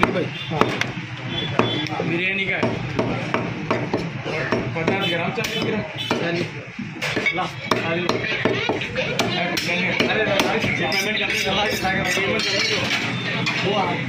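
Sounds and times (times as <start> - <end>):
cleaver chopping on wooden block: 2.6 - 6.3.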